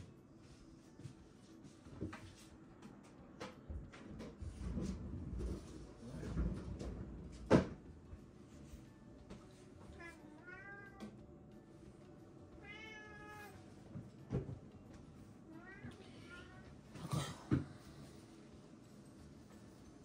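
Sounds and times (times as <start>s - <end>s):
cat meowing: 9.9s - 11.2s, 12.6s - 13.7s, 15.5s - 16.8s.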